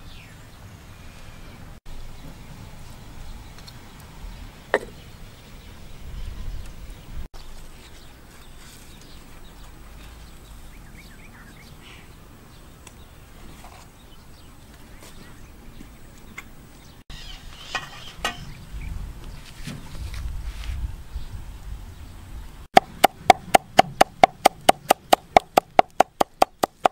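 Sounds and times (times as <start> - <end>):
wind rumble on microphone: 1.6 - 7.3, 17.4 - 22.7
sharp knock: 22.8 - 26.9.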